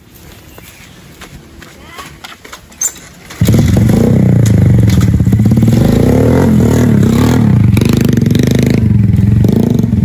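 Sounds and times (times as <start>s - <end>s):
motorcycle engine revving: 3.3s - 10.0s.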